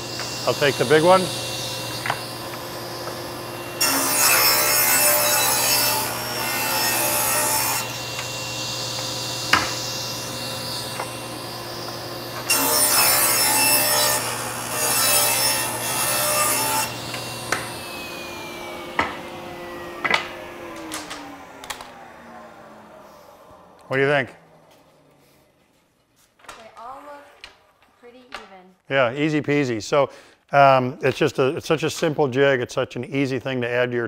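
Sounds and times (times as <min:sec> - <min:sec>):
saw winding down whine: 0:00.0 - 0:25.6
table saw cutting wood: 0:00.0 - 0:25.7
table saw running hum: 0:00.0 - 0:25.8.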